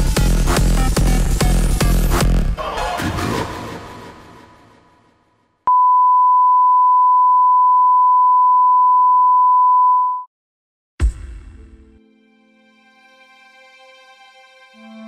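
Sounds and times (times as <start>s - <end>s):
electronic dance music: 0.0s - 4.0s
steady test tone beep: 5.7s - 10.3s.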